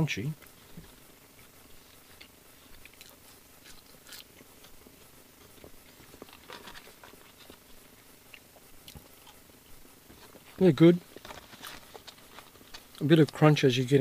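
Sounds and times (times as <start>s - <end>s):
chewing chips: 1.7s - 9.5s.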